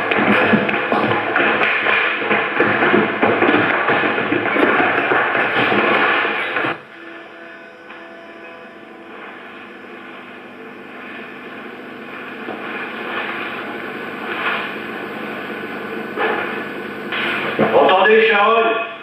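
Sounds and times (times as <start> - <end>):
steady rushing drone: 6.0 - 17.8
faint held tones: 6.9 - 17.8.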